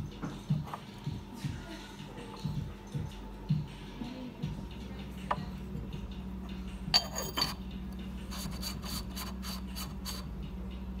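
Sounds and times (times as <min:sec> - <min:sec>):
low steady hum: 0:00.0 - 0:11.0
clay lid clinking on teapot: 0:07.0 - 0:07.6.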